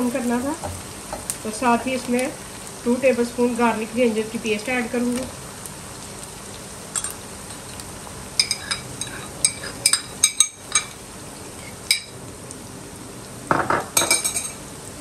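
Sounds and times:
onions sizzling in oil: 0:00.0 - 0:15.0
spoon clinking on bowl: 0:08.4 - 0:11.0
scrape in pan: 0:11.5 - 0:11.9.

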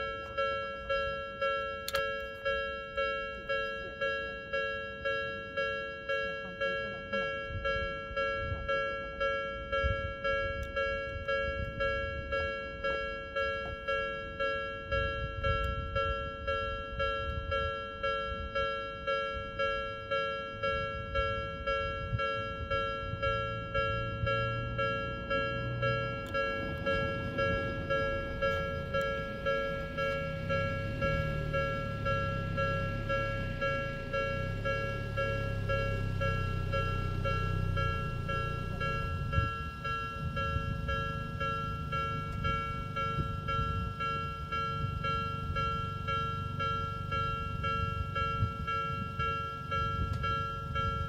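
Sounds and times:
level crossing warning bell: 0:00.0 - 0:51.0
low hum: 0:19.3 - 0:51.0.

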